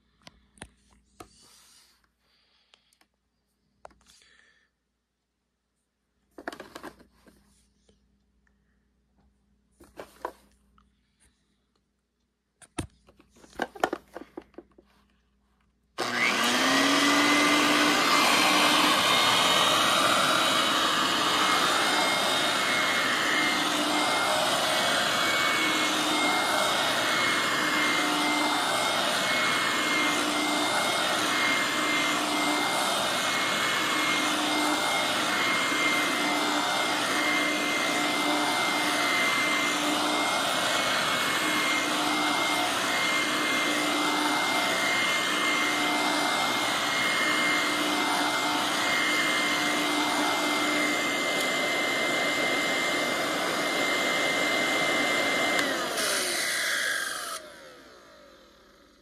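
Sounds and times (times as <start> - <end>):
vacuum cleaner on carpet: 16.0 - 59.0.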